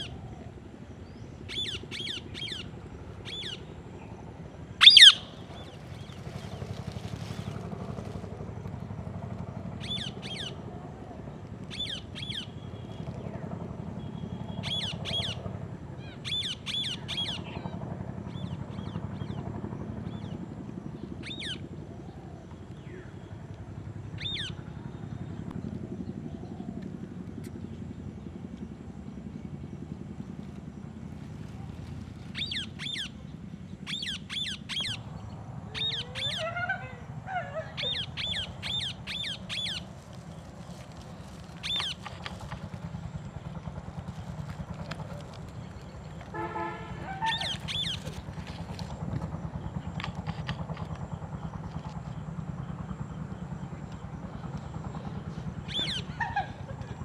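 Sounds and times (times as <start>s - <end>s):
steady low hum: 0.0s - 57.0s
parakeet screeching: 4.8s - 5.4s, 32.4s - 33.1s, 35.8s - 39.9s, 47.0s - 48.0s.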